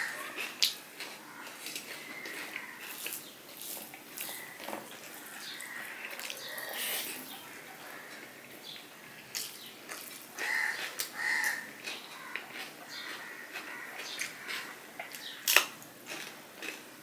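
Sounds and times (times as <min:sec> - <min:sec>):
fingers mixing rice on plate: 0:00.2 - 0:08.3, 0:09.4 - 0:15.2
bird calls: 0:04.2 - 0:08.9.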